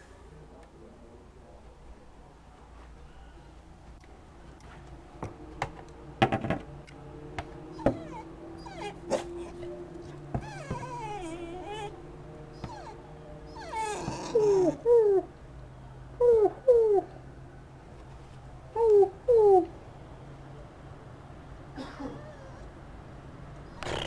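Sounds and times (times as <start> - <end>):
dog whining and whimpering: 7.7 - 12.0, 12.6 - 15.3, 22.0 - 22.7.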